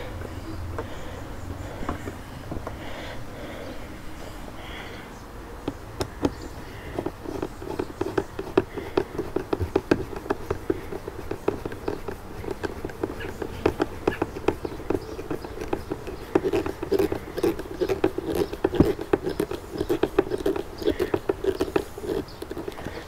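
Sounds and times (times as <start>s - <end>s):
screwdriver clicking and scraping: 5.7s - 23.0s.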